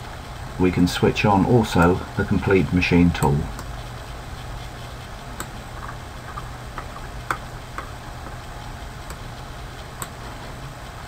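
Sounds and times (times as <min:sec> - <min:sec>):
steady low hum: 0:00.0 - 0:11.0
computer mouse clicking: 0:05.4 - 0:07.9, 0:10.0 - 0:10.2.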